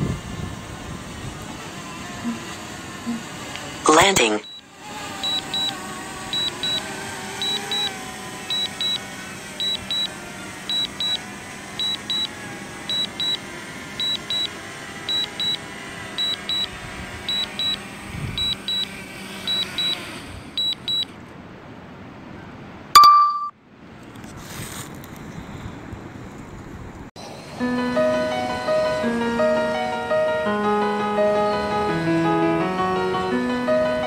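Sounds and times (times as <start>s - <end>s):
short high double beeps: 3.9s - 4.6s, 5.2s - 5.7s, 6.4s - 6.8s, 7.4s - 7.9s, 8.5s - 9.0s, 9.6s - 10.1s, 10.7s - 11.2s, 11.8s - 12.3s, 12.9s - 13.4s, 14.0s - 14.5s, 15.1s - 15.6s, 16.2s - 16.7s, 17.3s - 17.8s, 18.4s - 18.9s, 19.5s - 20.0s, 20.6s - 21.1s, 23.0s - 23.5s
short loud tone: 23.0s - 23.5s.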